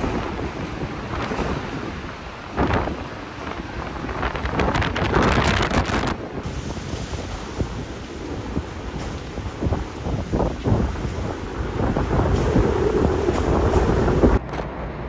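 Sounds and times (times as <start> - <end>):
driving rain: 0.0 - 14.4
hurricane wind gusts: 0.0 - 15.0.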